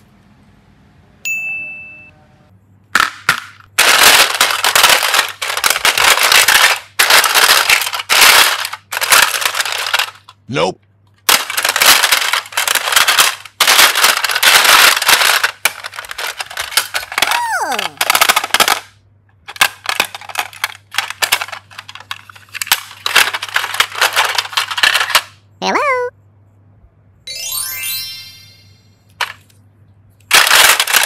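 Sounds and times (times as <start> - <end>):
plastic cases clattering: 3.0 - 10.4, 11.2 - 17.3, 17.9 - 18.9, 19.5 - 25.3, 30.3 - 31.0.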